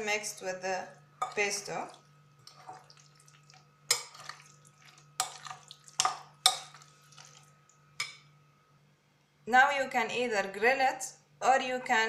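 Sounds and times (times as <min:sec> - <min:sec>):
spoon clinking glass bowl: 0:01.2 - 0:01.4, 0:03.9 - 0:07.4.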